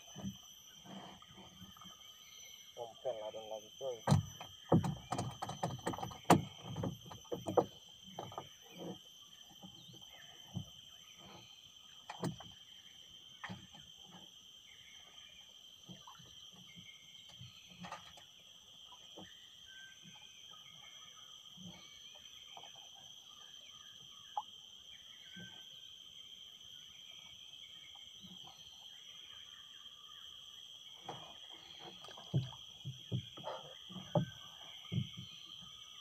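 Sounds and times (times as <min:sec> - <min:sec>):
insects droning: 0:00.0 - 0:36.0
knocks and thumps: 0:04.0 - 0:09.0, 0:31.0 - 0:35.7.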